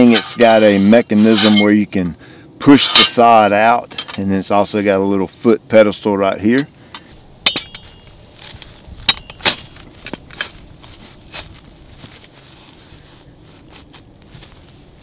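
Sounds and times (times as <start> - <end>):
crackling in soil: 6.4 - 15.0.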